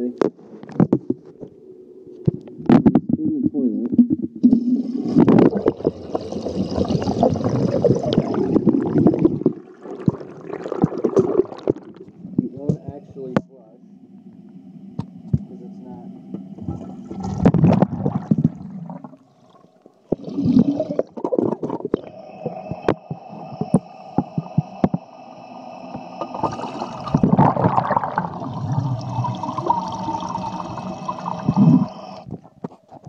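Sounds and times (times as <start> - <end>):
toilet flushing water: 4.4 - 12.7, 14.7 - 32.3.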